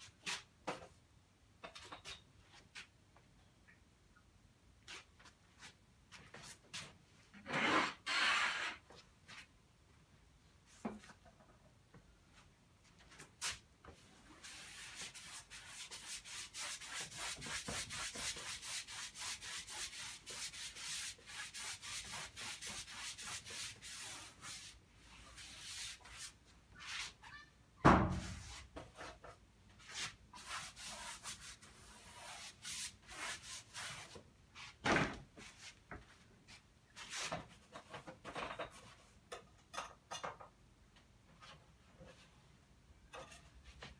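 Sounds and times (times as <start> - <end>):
paintbrush scrubbing canvas: 14.4 - 27.1, 29.9 - 34.2.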